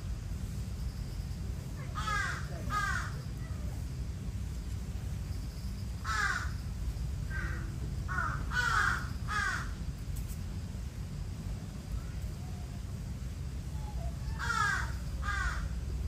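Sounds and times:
crow cawing: 2.0s - 3.2s, 6.0s - 6.5s, 7.3s - 9.7s, 14.4s - 15.8s.

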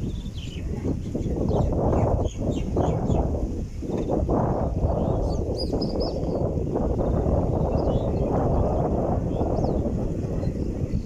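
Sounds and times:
faint bird chirps: 0.0s - 3.3s
low outdoor rumbling: 0.0s - 11.0s.

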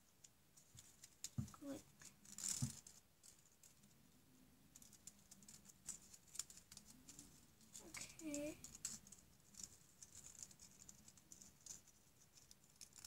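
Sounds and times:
small paper ticks and clicks: 0.1s - 4.1s, 4.7s - 13.0s.

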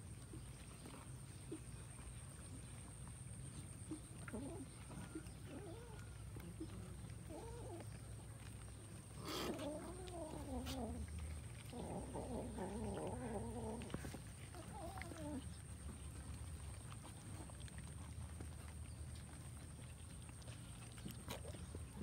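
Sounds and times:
cats meowing and yowling: 9.3s - 11.1s, 11.7s - 15.6s.

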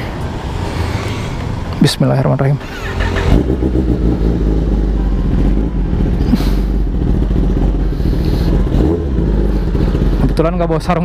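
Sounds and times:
motorcycle engine idling: 2.6s - 11.0s.

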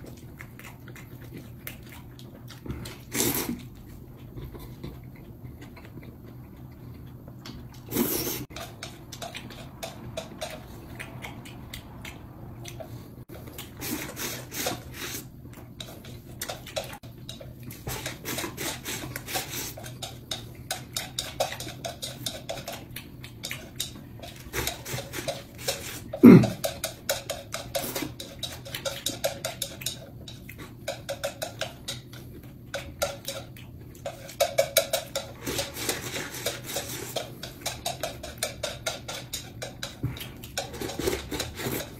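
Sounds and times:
chewing: 0.0s - 41.9s
chopsticks scraping rice bowl: 13.6s - 41.9s.

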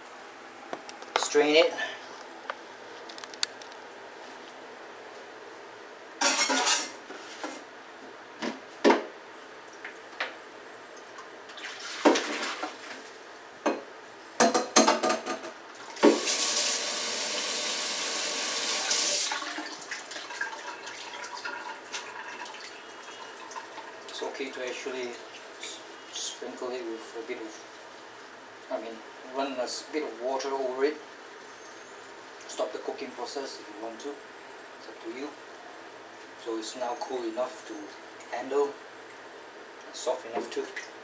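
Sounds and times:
pots clattering in metal sink: 6.2s - 7.0s, 14.4s - 16.4s
water pouring into sink: 11.5s - 12.9s, 15.8s - 24.2s.

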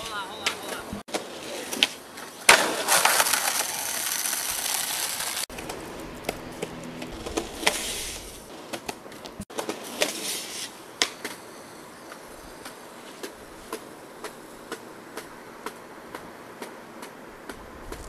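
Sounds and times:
skateboard deck hitting ground: 0.0s - 11.5s, 12.1s - 18.0s
skateboard wheels rolling on concrete: 0.0s - 18.0s
skateboard landing clack: 0.4s - 11.4s.

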